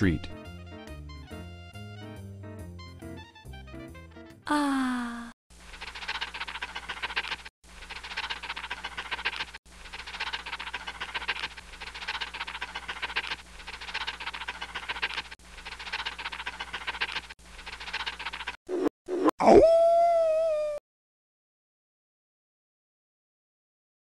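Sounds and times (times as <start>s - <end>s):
cartoon dog lapping liquid: 5.7s - 19.6s.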